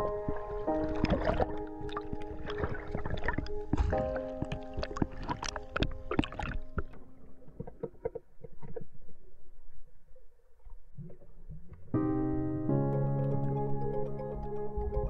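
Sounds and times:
underwater clicks and knocks: 0:00.0 - 0:08.9
muffled underwater water noise: 0:00.0 - 0:12.0.

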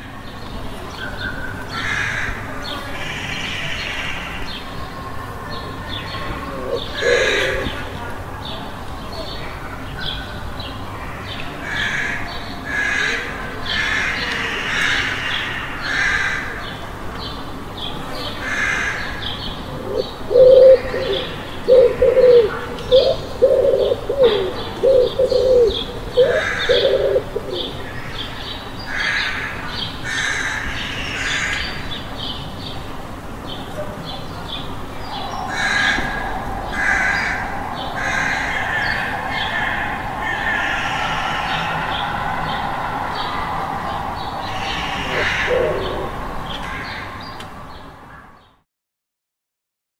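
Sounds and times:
low hum of surroundings: 0:00.0 - 0:48.6
pigeon cooing: 0:06.2 - 0:08.0, 0:19.7 - 0:27.8, 0:35.0 - 0:46.8.

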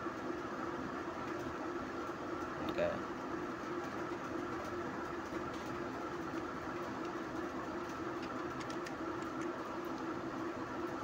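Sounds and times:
background hum: 0:00.0 - 0:11.0
keyboard keys typing: 0:05.2 - 0:10.1.

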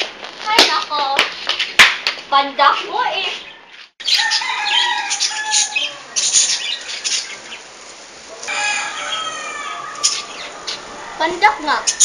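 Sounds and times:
birds calling: 0:02.8 - 0:12.0.

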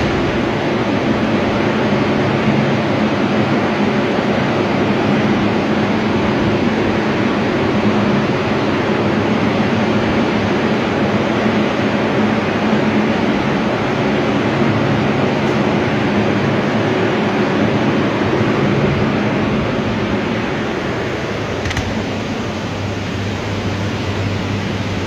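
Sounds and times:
air movers rushing air: 0:00.0 - 0:25.0
low motor hum: 0:00.0 - 0:25.0.

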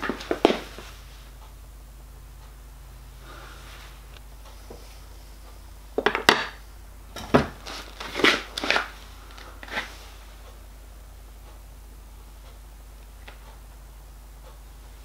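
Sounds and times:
metal knocking and scraping on bench: 0:07.2 - 0:08.9.

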